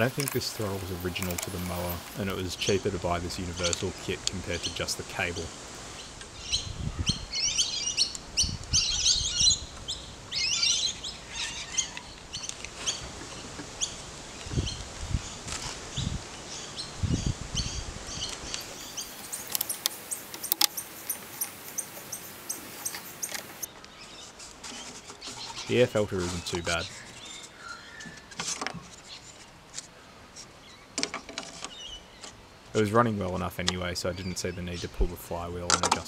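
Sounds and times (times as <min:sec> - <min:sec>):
small birds chirping: 0:00.0 - 0:28.2.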